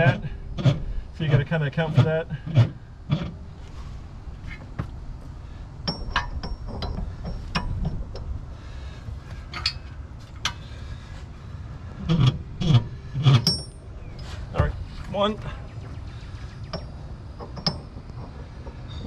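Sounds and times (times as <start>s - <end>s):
steel hitch clinking and clanking: 4.4s - 8.5s, 9.2s - 11.0s, 11.8s - 15.1s, 16.4s - 19.0s
metal knocks: 5.8s - 8.4s, 16.7s - 19.0s.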